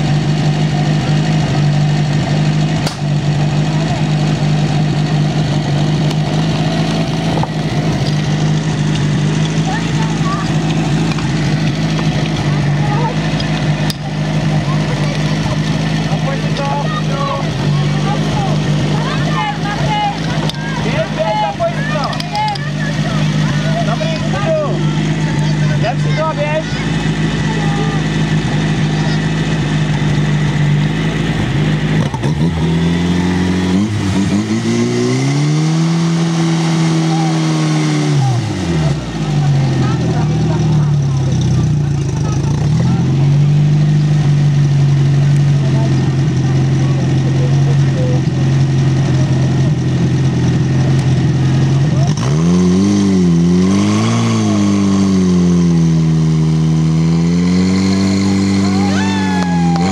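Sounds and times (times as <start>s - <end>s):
fire pump engine running: 0.0s - 59.9s.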